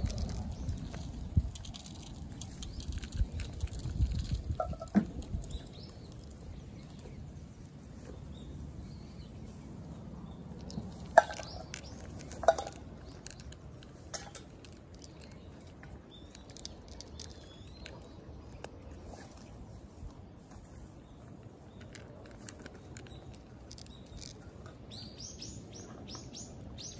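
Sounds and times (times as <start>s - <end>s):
cat crunching dry kibble: 0.0s - 24.7s.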